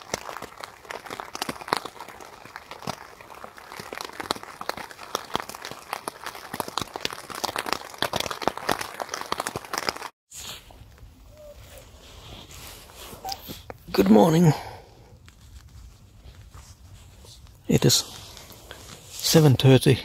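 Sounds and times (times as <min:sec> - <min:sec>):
rain hitting a tent: 0:00.0 - 0:10.1.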